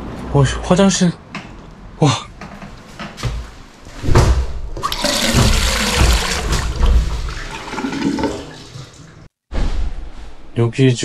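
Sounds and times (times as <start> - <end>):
toilet flushing: 4.8 - 9.3.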